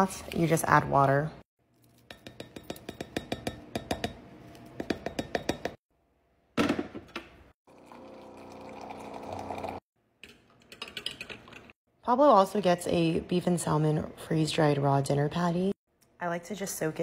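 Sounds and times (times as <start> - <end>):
water pouring into glass cup: 7.7 - 9.8.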